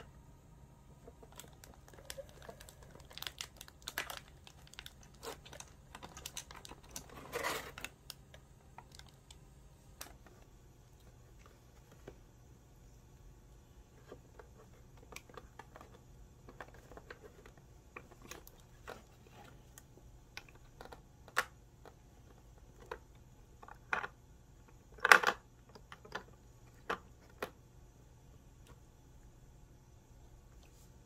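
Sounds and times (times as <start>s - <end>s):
plastic puzzle clicks and taps: 19.8s - 27.6s.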